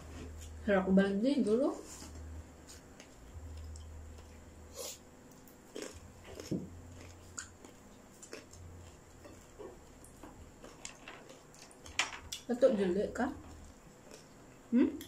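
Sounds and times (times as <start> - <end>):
faint low hum: 0.0 - 15.0
chewing crispy skin: 2.7 - 12.5, 13.4 - 15.0.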